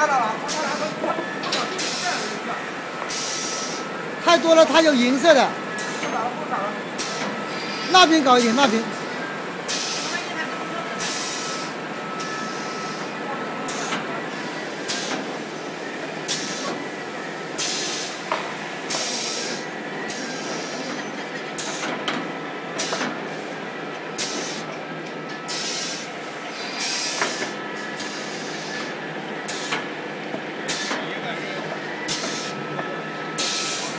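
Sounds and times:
paper tubes grinding hisses: 25.5 - 29.8.

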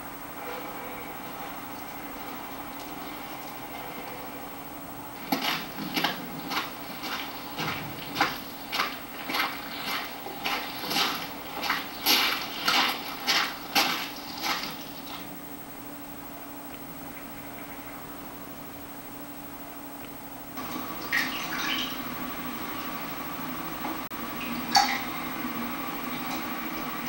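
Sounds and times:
hands splashing water in tin bucket: 5.2 - 15.2.

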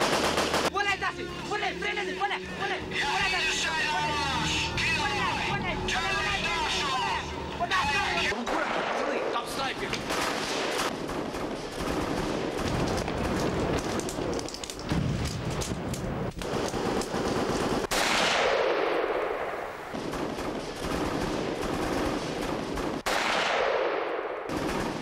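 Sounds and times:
rapid automatic gunfire: 0.0 - 0.7, 10.0 - 14.1, 16.4 - 18.5, 20.0 - 23.7, 24.5 - 25.0.

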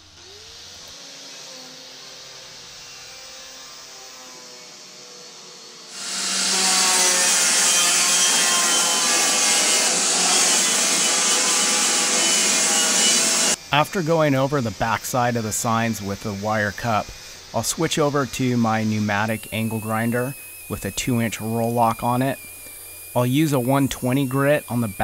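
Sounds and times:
wire brush grinder scrubbing steel: 5.9 - 25.0.

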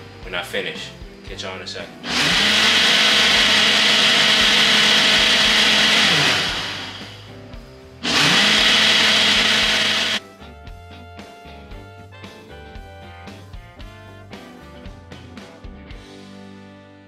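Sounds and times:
blender running: 2.0 - 7.4, 8.0 - 10.2.

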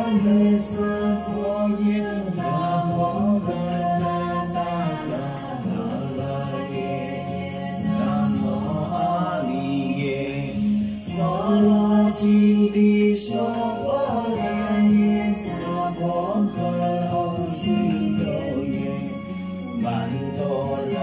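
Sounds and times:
man singing slow song: 0.0 - 21.0
musical backing: 0.0 - 21.0.

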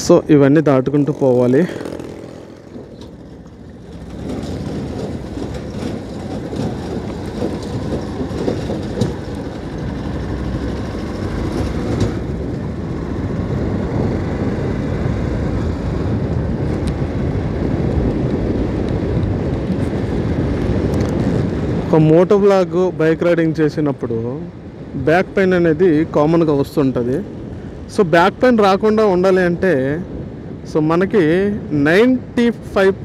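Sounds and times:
road noise rumble: 0.0 - 33.0
motorcycle engine running: 0.9 - 14.6.

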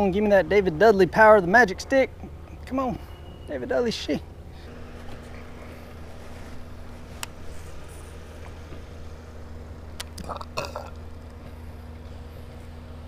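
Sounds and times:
low hum with faint whine: 0.0 - 13.0.

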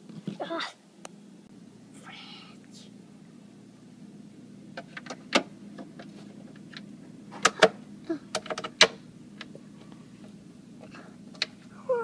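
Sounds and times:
low steady hum: 0.0 - 12.0
plastic toys clicking and knocking: 8.3 - 9.0.

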